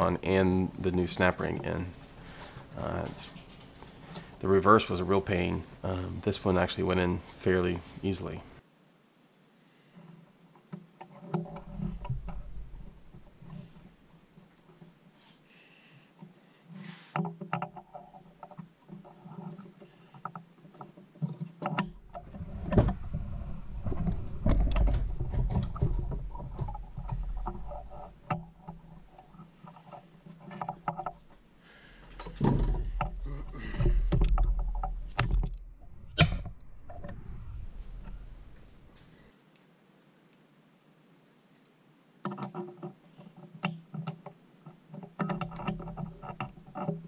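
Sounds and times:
metallic clicks and knocks: 10.7 - 14.9, 17.1 - 38.3, 42.2 - 47.0
low rumbling handling noise: 11.3 - 15.0, 20.8 - 39.3.

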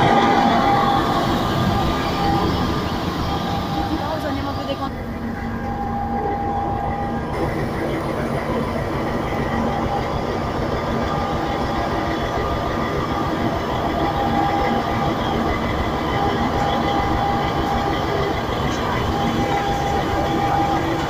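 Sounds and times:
locomotive engine humming: 0.0 - 21.0.

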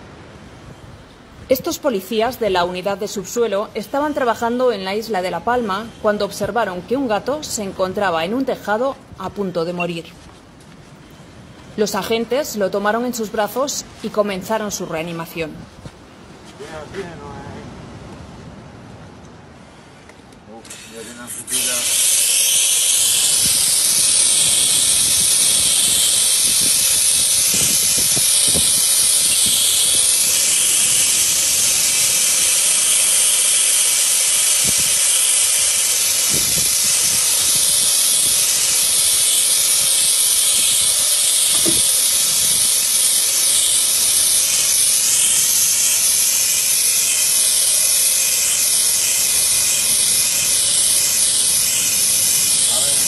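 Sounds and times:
gas hissing from hose: 20.7 - 53.0.

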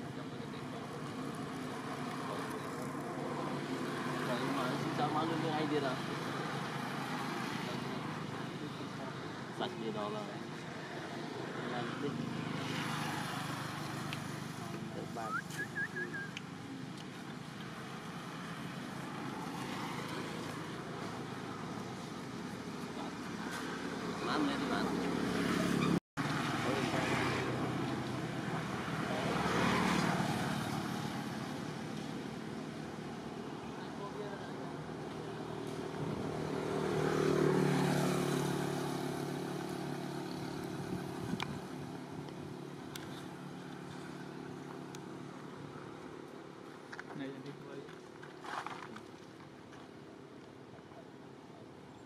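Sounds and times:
outdoor background rumble and hiss: 0.0 - 25.6
vehicle engine passing: 33.2 - 44.7.

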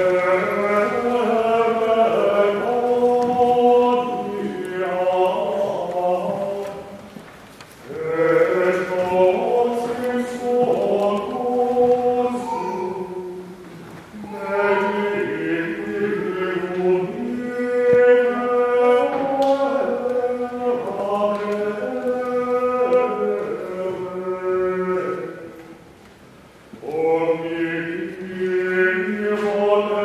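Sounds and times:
choir singing a slow chant: 0.0 - 7.1, 7.9 - 25.8, 26.8 - 30.0.

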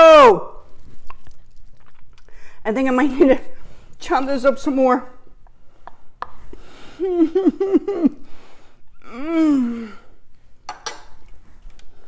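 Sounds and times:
woman gasping and hooting: 8.5 - 10.2.

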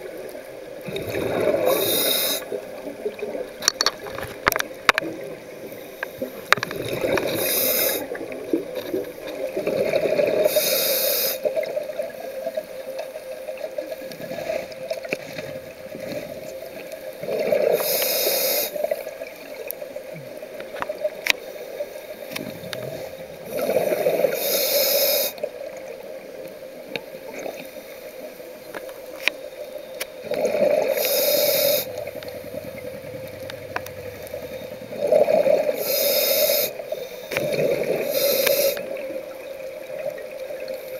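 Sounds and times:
exhaled bubbles rushing: 0.8 - 5.5, 6.4 - 10.5, 30.2 - 35.8
scuba regulator breathing hiss: 1.5 - 2.6, 7.2 - 8.2, 10.4 - 11.5, 17.6 - 19.0, 21.4 - 25.5, 30.6 - 32.2, 34.4 - 39.0
faint clicks and crackles: 2.4 - 10.4, 11.4 - 24.4, 25.3 - 35.8.

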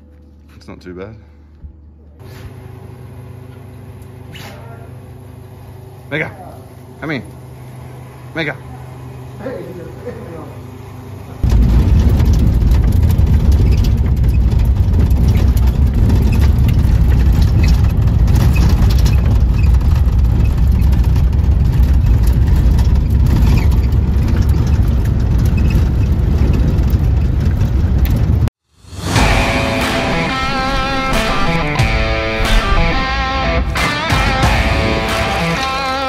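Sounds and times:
guitar music: 28.9 - 36.0.

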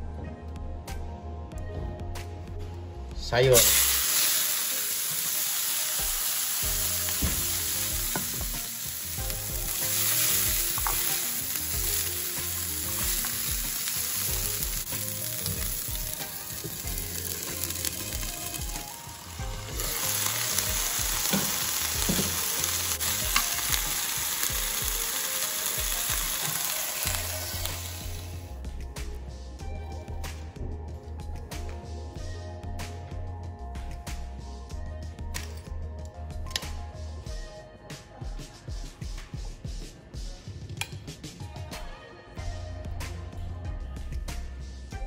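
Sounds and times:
vegetables sizzling in a frying pan: 3.6 - 28.5.

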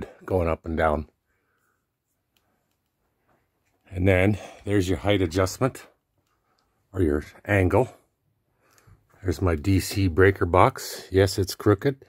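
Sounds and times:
man's voice: 3.9 - 6.0, 6.9 - 8.0, 9.2 - 12.0.

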